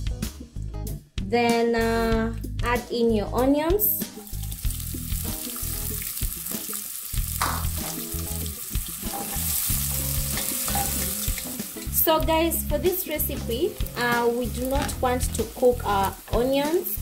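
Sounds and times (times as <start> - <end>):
onions sizzling in oil: 4.2 - 17.0.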